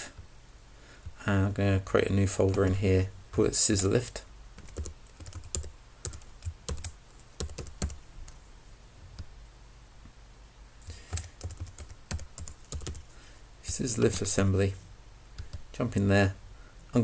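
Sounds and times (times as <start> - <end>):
computer keyboard typing: 4.6 - 8.4, 10.9 - 13.1, 15.4 - 15.7.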